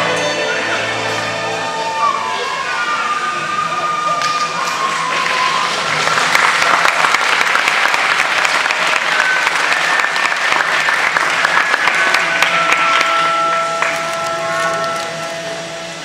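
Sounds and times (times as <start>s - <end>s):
voices in crowd: 0.0s - 16.0s
audience applauding: 3.9s - 15.3s.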